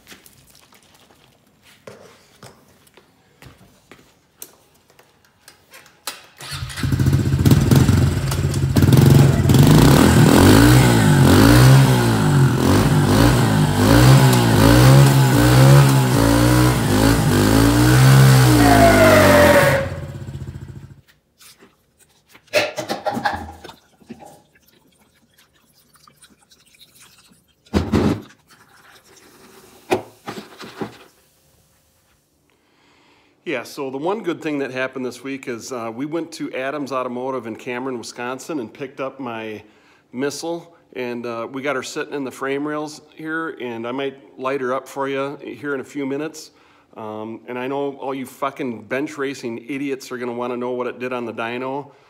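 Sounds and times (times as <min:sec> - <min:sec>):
dirt bike engine revving: 0:06.6 - 0:21.0.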